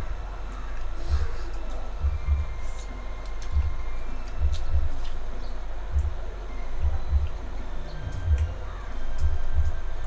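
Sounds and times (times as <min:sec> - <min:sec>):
background music: 0:00.0 - 0:10.0
deep bass thumps: 0:02.0 - 0:02.6, 0:03.5 - 0:05.0, 0:05.9 - 0:07.4.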